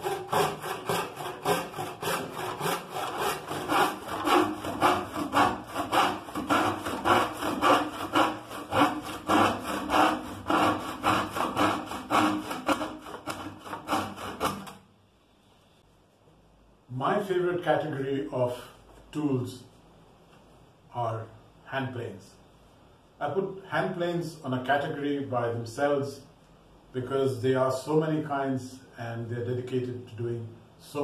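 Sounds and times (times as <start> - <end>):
hand saw cutting plywood: 0.0 - 14.8.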